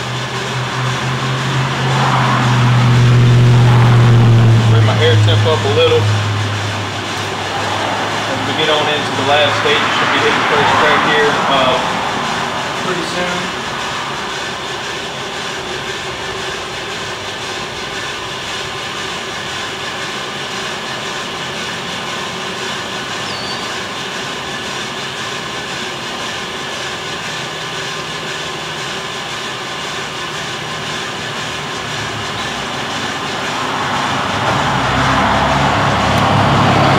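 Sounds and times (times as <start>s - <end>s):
coffee roaster running: 0.0s - 36.9s.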